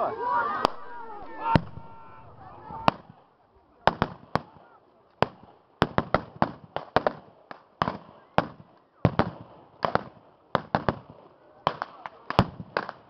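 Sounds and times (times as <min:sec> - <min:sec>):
blank gunfire with echo: 0:03.9 - 0:04.6, 0:05.2 - 0:13.0.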